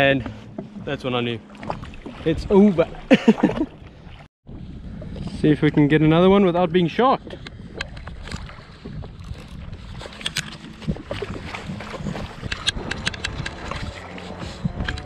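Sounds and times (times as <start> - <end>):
water slapping against hull: 0.0 - 6.0, 7.1 - 15.0
wind: 0.0 - 15.0.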